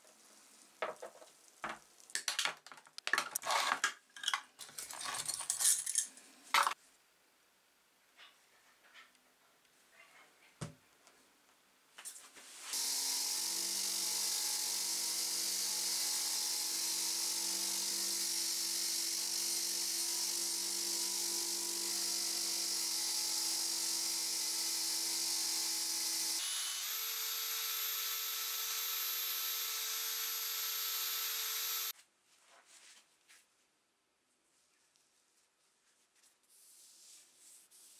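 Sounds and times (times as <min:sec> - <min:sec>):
cordless drill whining: 0:25.7 - 0:31.9.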